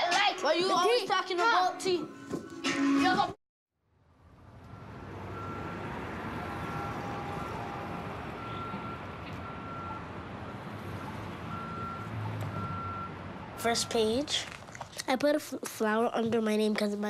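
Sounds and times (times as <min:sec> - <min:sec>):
reversing alarm beeping: 0:04.7 - 0:14.2.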